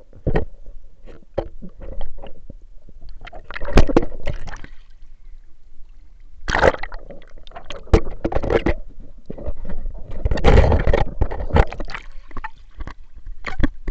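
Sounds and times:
water splashing in a pool: 1.7 - 5.1, 6.0 - 9.0, 9.6 - 13.9.

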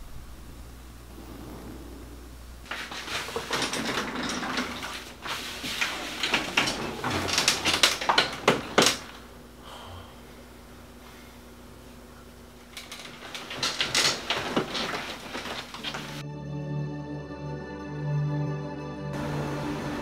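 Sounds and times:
rustling bumps and clicks: 2.6 - 9.3, 12.8 - 16.2.

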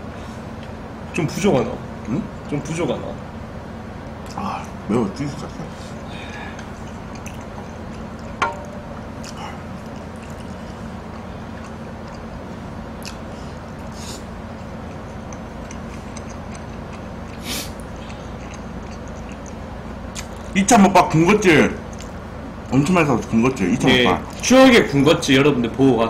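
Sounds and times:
room hum: 0.0 - 26.0
eating noises: 4.2 - 24.6
short hissing sounds: 17.4 - 17.8.

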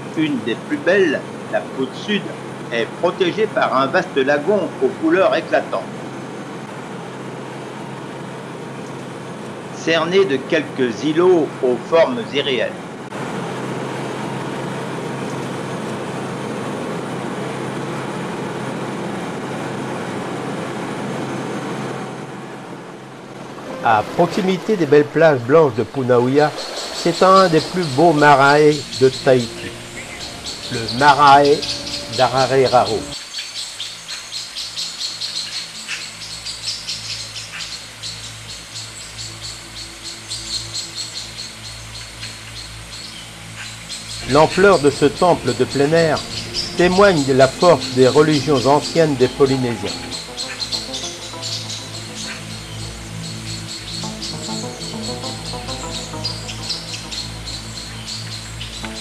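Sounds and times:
low steady hum: 0.0 - 33.2, 38.1 - 59.0
aircraft engine and rushing air: 12.8 - 33.2, 44.2 - 59.0
birds chirping: 23.3 - 59.0.

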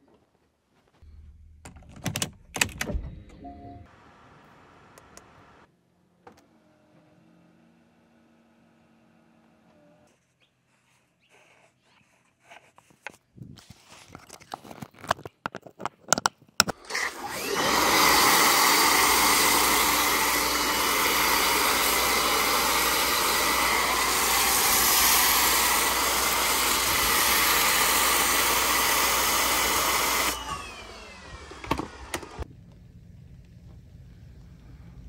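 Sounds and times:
motor whine: 16.7 - 32.9
pressure washer spraying foam: 16.9 - 32.4.

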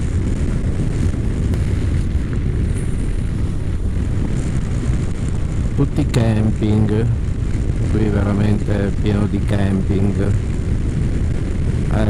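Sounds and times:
motorcycle engine rumble: 0.0 - 12.0
wind rushing over microphone: 0.0 - 12.0.

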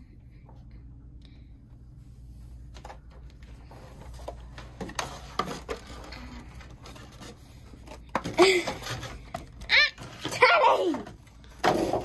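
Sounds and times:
plastic rattling: 4.1 - 12.0.

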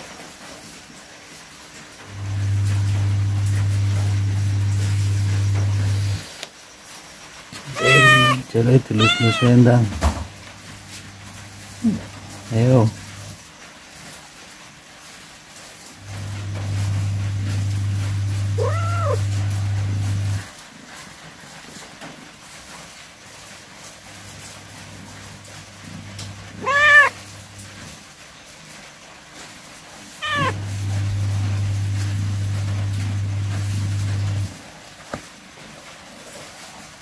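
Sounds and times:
cat meowing: 7.6 - 9.9, 18.5 - 19.4, 26.6 - 27.3, 30.2 - 30.7.

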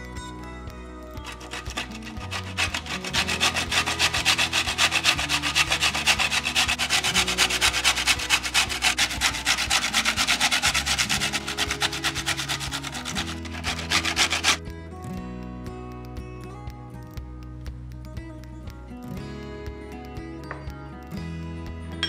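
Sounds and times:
broccoli rasping on a box grater: 1.2 - 14.6.

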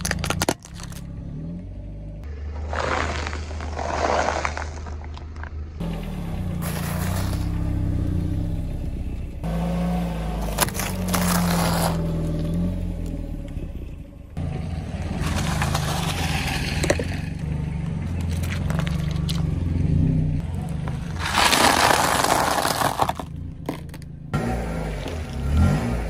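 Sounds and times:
tyre crushing ice-cream cones: 0.0 - 1.0, 10.4 - 12.1, 20.8 - 24.1
car engine humming: 0.0 - 26.0
tyre crushing dry pasta: 2.6 - 5.3, 10.4 - 12.1, 20.8 - 24.0.

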